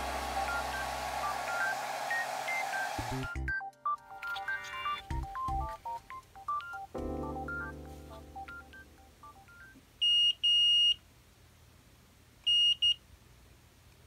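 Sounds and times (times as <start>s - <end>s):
soft plinking background music: 3.3s - 9.7s.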